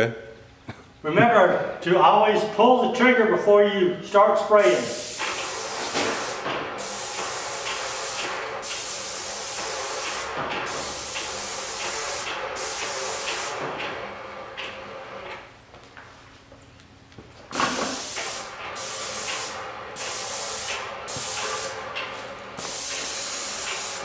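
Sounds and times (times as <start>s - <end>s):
paint spray gun hissing: 4.6s - 13.6s, 17.5s - 21.9s, 22.6s - 24.0s.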